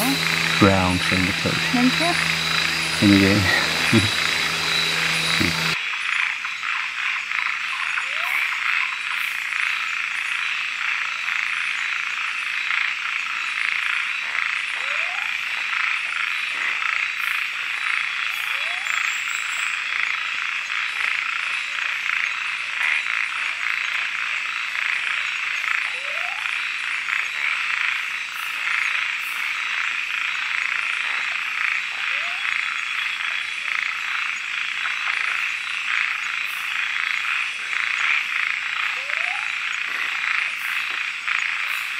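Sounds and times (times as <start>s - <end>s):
upward-sliding frog calls: 0.0s - 5.8s, 29.6s - 41.9s
frogs calling chorus: 0.0s - 41.9s.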